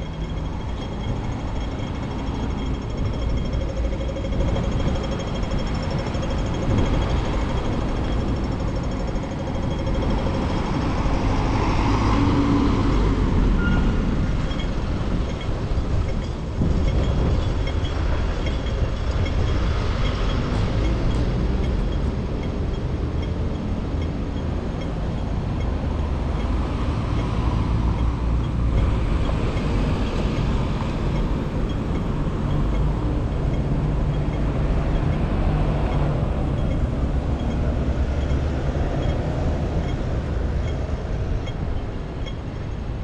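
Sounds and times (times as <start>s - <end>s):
cars driving past: 0.0s - 43.0s
steady low traffic rumble: 0.0s - 43.0s.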